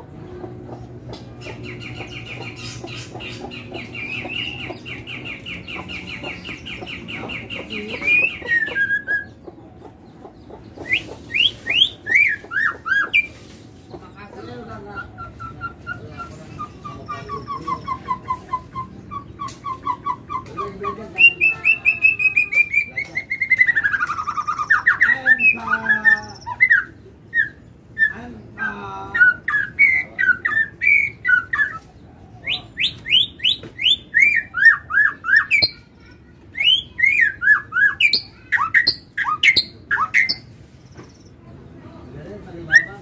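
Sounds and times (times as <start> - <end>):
songbird singing: 0.0 - 43.0.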